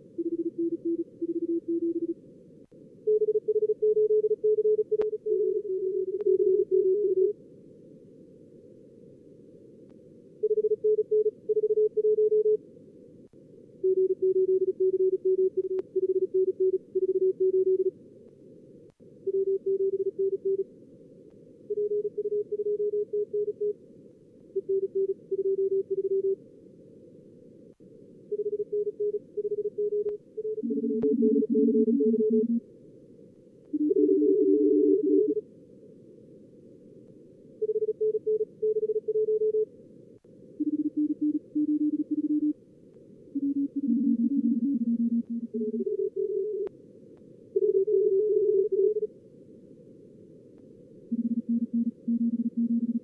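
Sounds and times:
lower-pitched morse signal: 28.4s - 32.6s, 43.4s - 46.7s, 51.1s - 53.0s
morse code tones: 28.4s - 32.6s, 43.4s - 46.7s, 51.1s - 53.0s.

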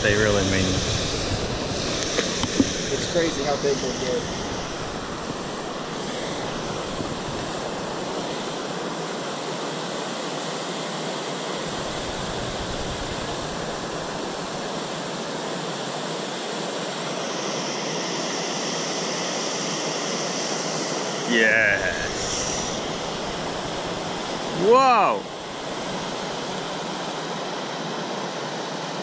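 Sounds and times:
running water rushing: 0.0s - 17.3s, 20.9s - 29.0s.

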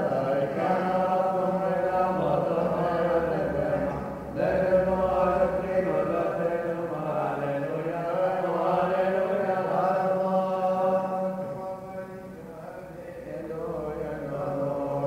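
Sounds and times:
voices chanting long notes: 0.0s - 15.0s.

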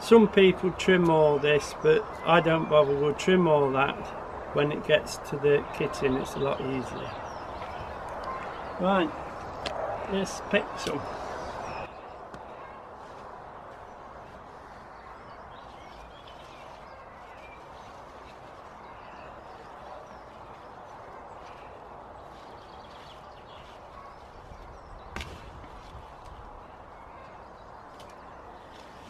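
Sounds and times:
stalk snapping: 27.9s - 29.0s.

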